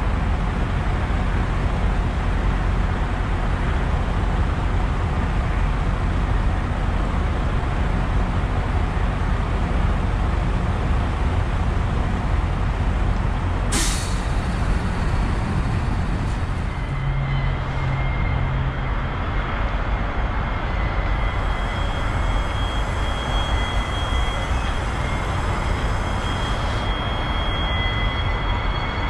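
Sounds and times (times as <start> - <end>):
air brake hiss: 13.7 - 15.0, 21.6 - 27.0
faint high steady tones: 20.8 - 29.0.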